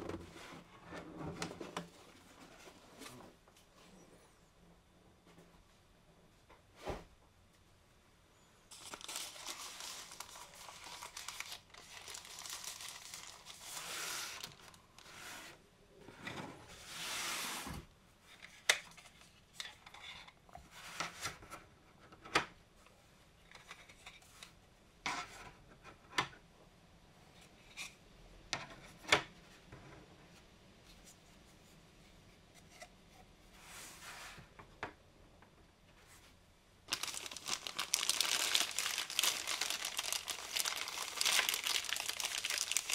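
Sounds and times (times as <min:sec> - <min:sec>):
plastic wrap crinkling: 0:08.7 - 0:15.1, 0:36.9 - 0:42.9
plastic bag rustling: 0:08.7 - 0:15.2, 0:36.9 - 0:42.9.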